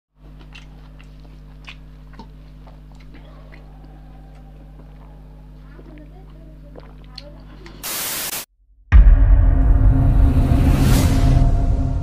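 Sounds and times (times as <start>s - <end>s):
electrical mains hum: 0.2s - 7.8s.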